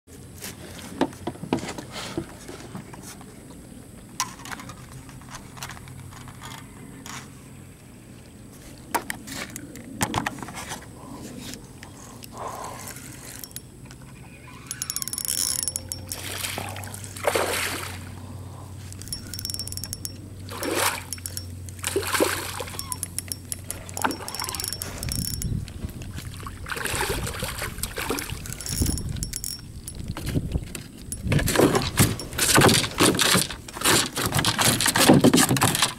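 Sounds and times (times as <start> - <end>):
sharp clicks and knocks: 13.3 - 14.0, 14.7 - 16.2, 18.9 - 22.0, 22.7 - 26.0, 28.0 - 35.9
fish thrashing in water: 14.7 - 18.2, 19.0 - 25.4, 26.0 - 35.9.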